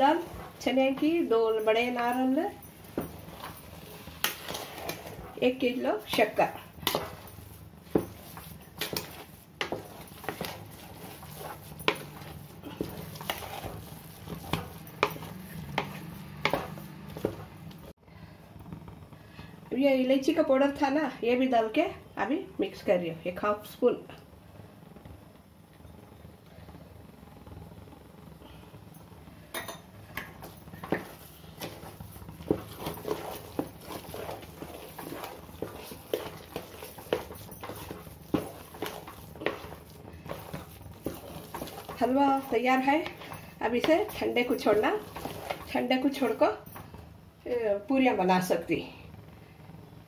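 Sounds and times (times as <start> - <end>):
spatula scraping metal pot: 0.0 - 17.7, 29.6 - 46.9
spatula knocking pot sides: 6.0 - 17.5.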